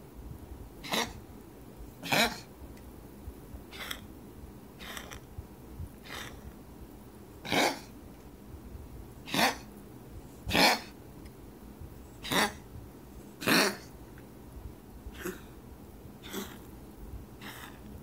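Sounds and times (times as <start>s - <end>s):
cat coughing: 0.8s - 1.2s, 2.0s - 2.5s, 3.7s - 4.0s, 4.8s - 5.2s, 7.5s - 7.9s, 10.5s - 10.9s, 12.2s - 12.6s, 13.4s - 13.9s, 15.1s - 15.6s, 16.2s - 16.7s, 17.4s - 17.8s.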